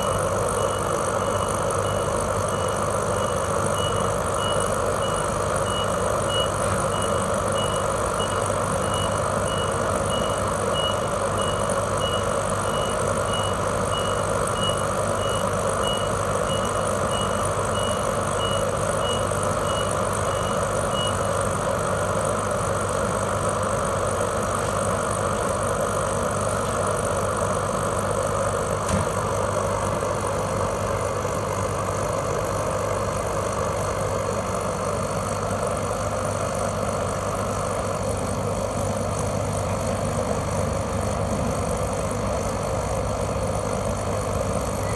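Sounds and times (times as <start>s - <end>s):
high beeps: 0.0s - 21.4s
heater fan humming: 0.0s - 44.9s.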